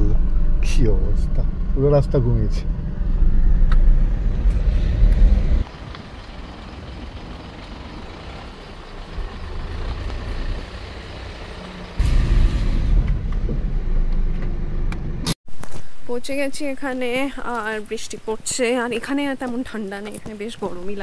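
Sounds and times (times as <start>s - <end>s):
car rumble inside cabin: 0.0s - 12.0s, 13.0s - 15.3s.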